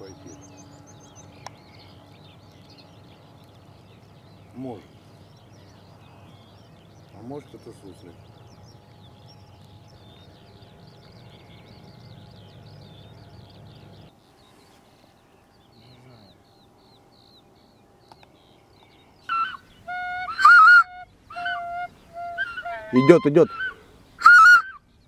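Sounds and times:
faint small birds chirping: 0:00.0 - 0:25.0
geese honking: 0:19.3 - 0:24.8.

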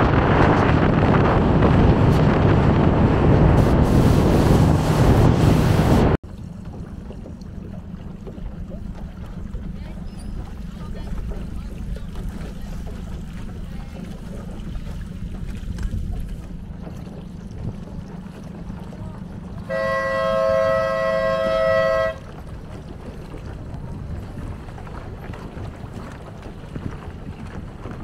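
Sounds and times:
wind rumbling on microphone: 0:00.0 - 0:28.0
boat horn long blast: 0:19.1 - 0:22.6.

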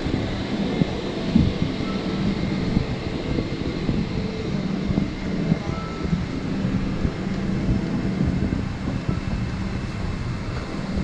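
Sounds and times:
aircraft cabin hum: 0:00.0 - 0:11.0
murmur of passengers: 0:00.0 - 0:11.0.

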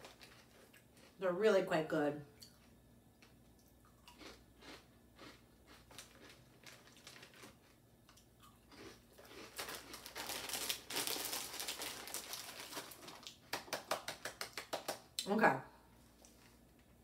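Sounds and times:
plastic bag crinkling: 0:00.0 - 0:01.0, 0:05.7 - 0:07.8, 0:09.2 - 0:13.4
crisps crunching: 0:00.0 - 0:01.2, 0:03.2 - 0:13.8.

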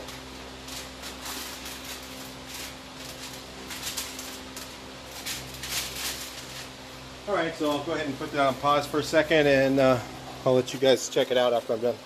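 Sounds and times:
steady low hum: 0:00.0 - 0:12.0
paper and plastic sheeting rustling: 0:00.6 - 0:06.7.

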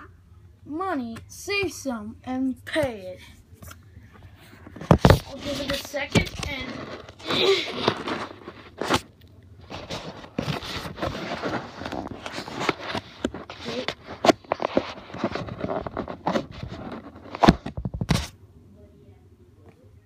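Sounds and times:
handling noise scraping and crackling: 0:03.6 - 0:18.4.

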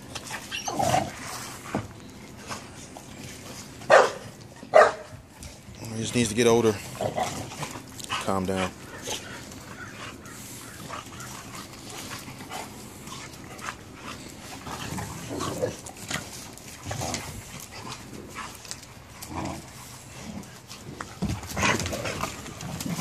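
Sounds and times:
dogs scuffling: 0:00.0 - 0:23.0.

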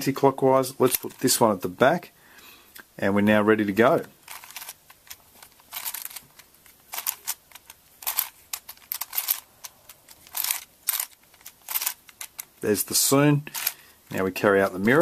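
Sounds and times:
puzzle cube clicking: 0:04.0 - 0:12.6, 0:13.5 - 0:13.8.

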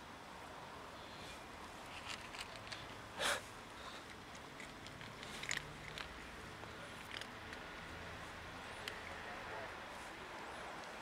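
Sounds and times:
cat crunching dry kibble: 0:01.8 - 0:03.0, 0:03.9 - 0:09.2
cat sniffing: 0:02.8 - 0:04.3.

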